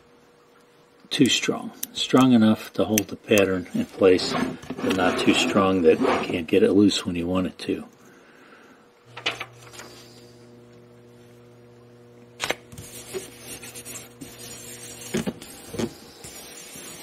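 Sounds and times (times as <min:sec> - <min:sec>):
electrical mains hum: 0:00.0 - 0:17.0
paper rubbed on wooden board: 0:04.2 - 0:06.4, 0:12.8 - 0:17.0.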